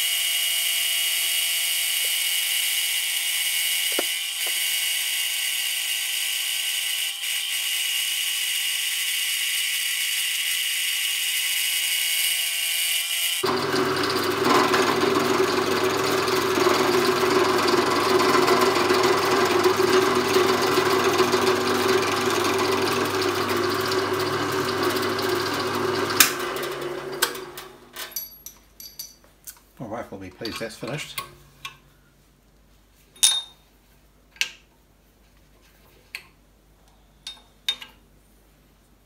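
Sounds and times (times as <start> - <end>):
drill whining: 0.0 - 12.3, 12.9 - 27.6
rough metal cutting noise: 0.0 - 27.6.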